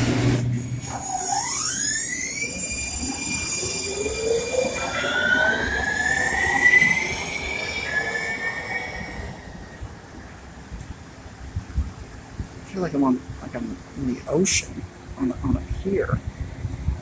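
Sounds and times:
electric train drive whining: 0.0 - 10.9.

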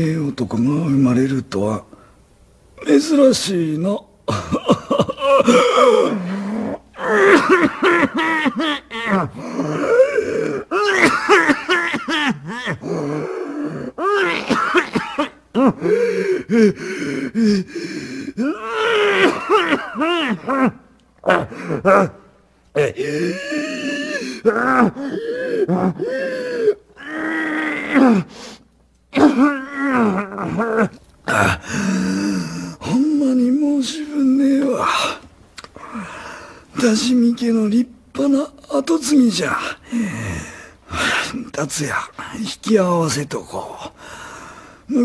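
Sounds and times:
man coughing and wheezing: 4.3 - 6.3, 7.0 - 17.7, 18.3 - 22.2, 29.1 - 29.6
man groaning in pain: 4.5 - 14.8, 22.8 - 28.3
harsh gasping breath: 15.8 - 18.4, 23.0 - 26.8, 35.8 - 36.7, 39.7 - 41.4, 44.0 - 44.9.

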